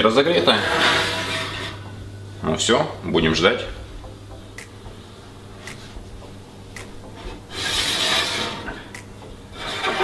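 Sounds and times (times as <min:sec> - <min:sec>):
ceramic dish scraping wire rack: 0:00.3 - 0:01.8, 0:07.5 - 0:08.9, 0:09.5 - 0:10.0.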